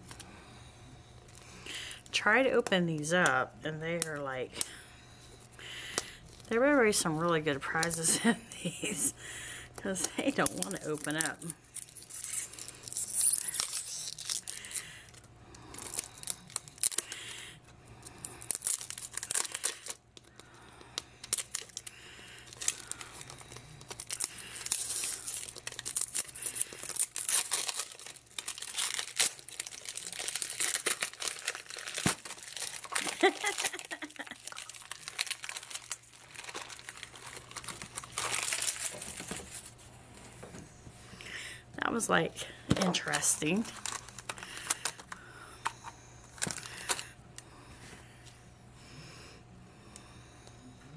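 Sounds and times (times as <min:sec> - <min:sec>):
plastic wrap crinkling and tearing: 0:10.0 - 0:17.3, 0:18.2 - 0:20.4, 0:21.2 - 0:39.8, 0:42.7 - 0:45.2, 0:46.4 - 0:47.1.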